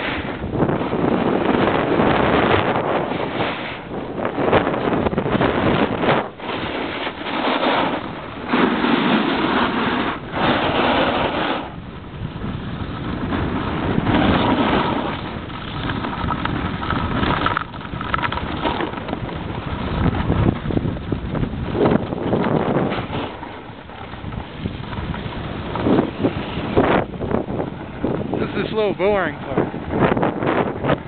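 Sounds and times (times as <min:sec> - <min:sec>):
wind buffeting microphone: 0:00.0 - 0:31.0
skis hissing on packed snow: 0:06.6 - 0:11.7.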